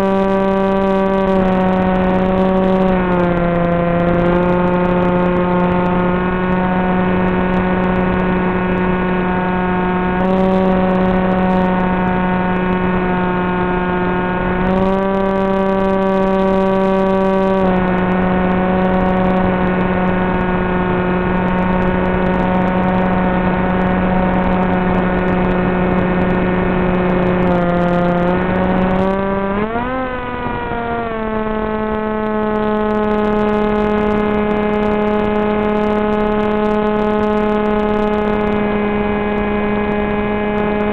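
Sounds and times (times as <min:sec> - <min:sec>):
electric motor and propeller buzzing: 0:00.0 - 0:40.9.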